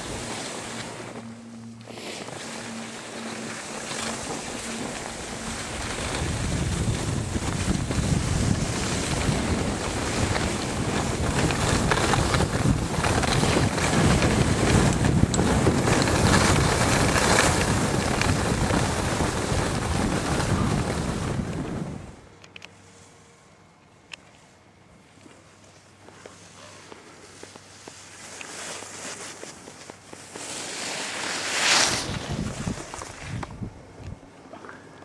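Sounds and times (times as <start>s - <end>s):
wind rushing over microphone: 0.0s - 1.5s, 2.2s - 22.3s, 31.4s - 34.3s
skis sliding over snow: 0.0s - 22.1s, 25.7s - 33.6s.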